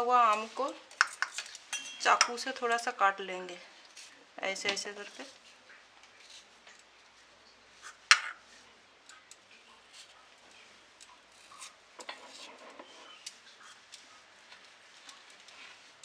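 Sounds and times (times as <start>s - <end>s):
knife cutting and scraping: 11.4s - 14.0s.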